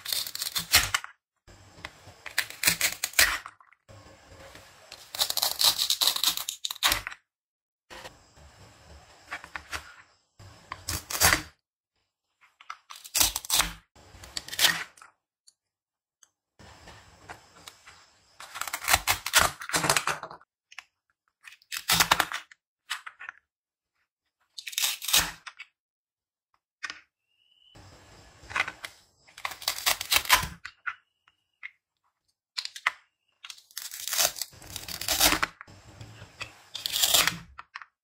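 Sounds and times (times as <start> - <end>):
velcro ripping apart: 5.1 - 7.0, 33.5 - 35.6, 36.8 - 37.4.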